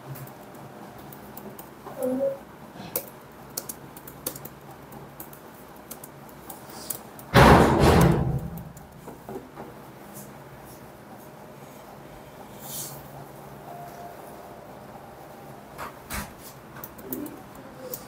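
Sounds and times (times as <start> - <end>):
faint clicks and taps: 2.8 - 7.3, 15.8 - 18.0
loud thump: 7.4 - 8.6.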